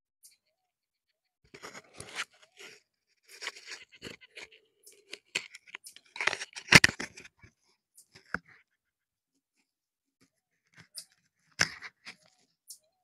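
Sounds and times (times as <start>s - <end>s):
crackling against microphone windscreen: 1.5s - 7.5s.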